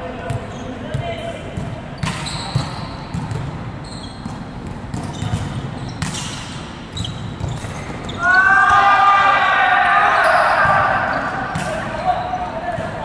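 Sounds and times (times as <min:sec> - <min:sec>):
volleyball slaps echoing in a hall: 0:00.0 - 0:13.0.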